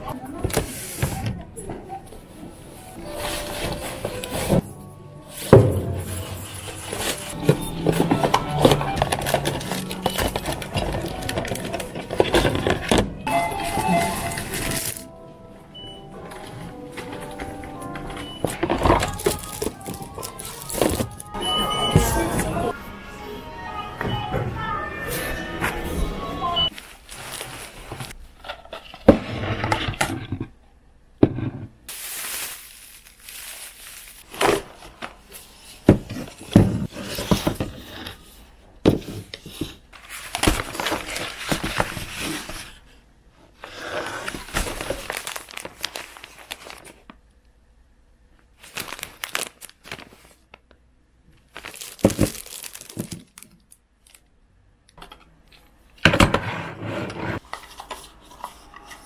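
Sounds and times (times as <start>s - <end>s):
packaging rustling and crinkling: 5.3s - 13.0s, 13.6s - 15.1s, 16.3s - 21.4s, 26.7s - 29.0s, 31.9s - 37.9s, 39.6s - 42.9s, 44.1s - 47.2s, 48.6s - 50.6s, 51.4s - 54.2s.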